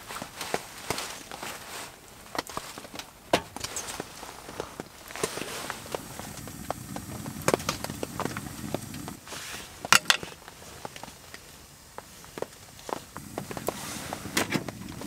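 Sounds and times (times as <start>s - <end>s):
sharp ticks and pops: 4.7s - 9.2s.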